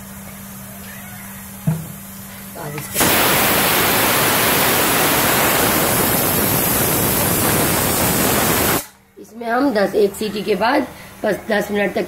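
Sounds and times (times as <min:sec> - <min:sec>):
pressure cooker steam hiss: 0:01.8 - 0:09.0.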